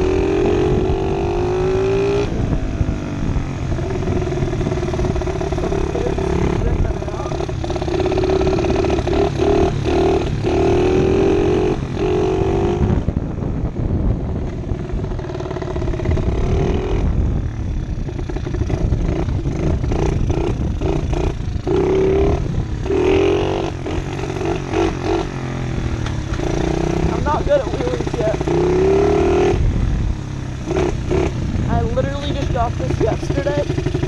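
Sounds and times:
small motorbike engine accelerating: 0:00.0 - 0:34.0
wind rumbling on microphone: 0:00.0 - 0:34.0.

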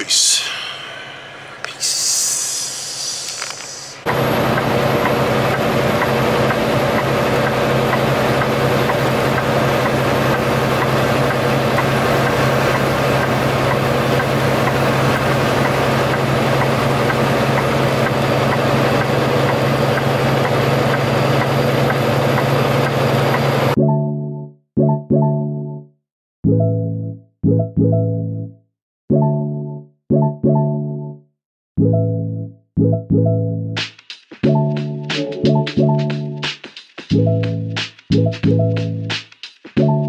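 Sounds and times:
diesel truck engine: 0:00.1 - 0:23.8
road noise: 0:00.1 - 0:23.8.

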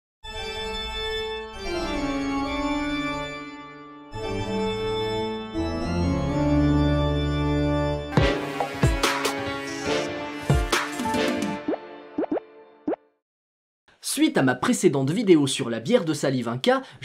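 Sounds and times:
organ chords: 0:00.4 - 0:12.2.

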